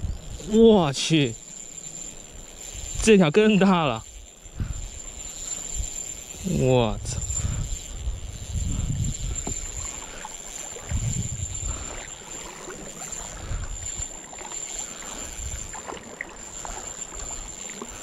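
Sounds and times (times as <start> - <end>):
wind rumbling on microphone: 0.0 - 1.4, 2.2 - 14.2, 15.1 - 18.0
shallow river water: 0.0 - 18.0
high-pitched whine: 5.0 - 18.0.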